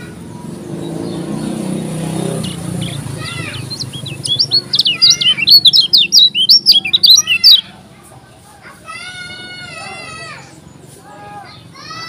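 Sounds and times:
bird singing high whistled sweeps: 0:00.8 - 0:07.6.

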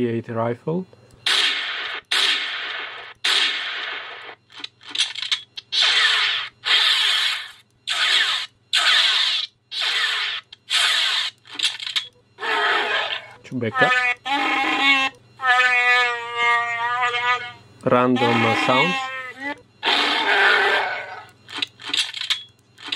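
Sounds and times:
steady low hum: 0:00.0 - 0:22.9
rifle gunshots through small speakers: 0:01.3 - 0:04.4.

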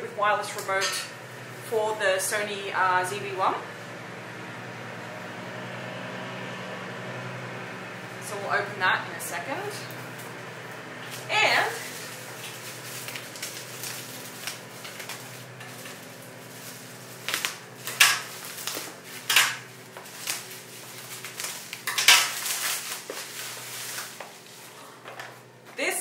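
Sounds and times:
bubble wrap rustling and crackling: 0:10.0 - 0:25.0.

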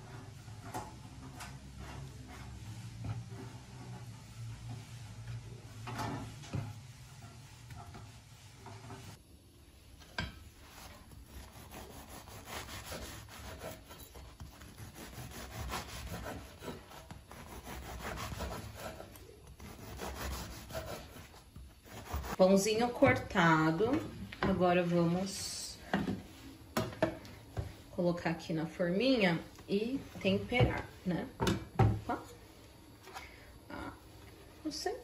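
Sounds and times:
knife sawing through bread: 0:10.7 - 0:22.4.

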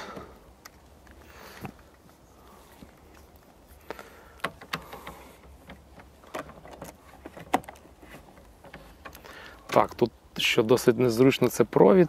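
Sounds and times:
cable rustling: 0:00.0 - 0:10.2.

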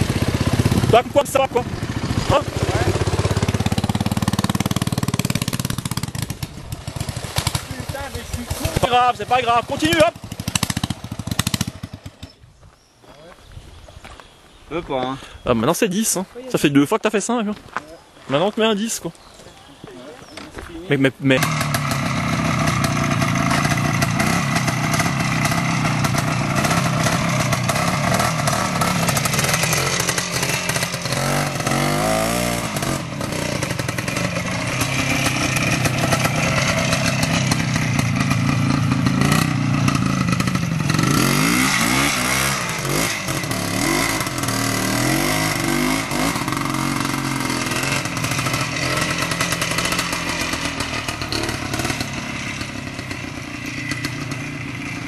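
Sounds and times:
motorcycle engines revving: 0:00.0 - 0:12.4, 0:18.4 - 0:55.0
clatter: 0:45.7 - 0:55.0.

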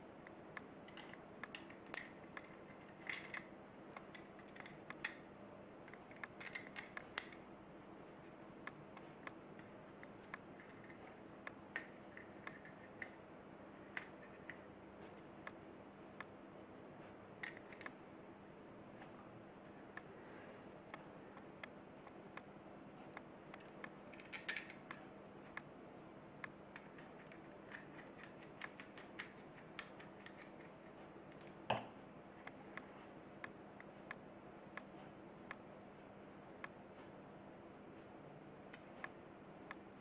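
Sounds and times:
plastic and metal parts clicking: 0:00.9 - 0:05.2, 0:05.9 - 0:07.4, 0:23.6 - 0:25.6, 0:26.8 - 0:31.5.

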